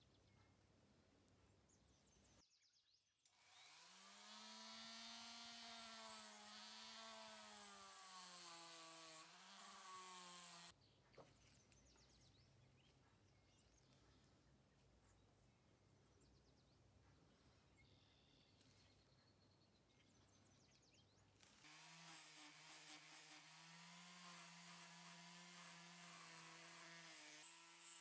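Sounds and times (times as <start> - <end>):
rotary tool cutting metal: 3.4 - 10.7, 21.4 - 28.0.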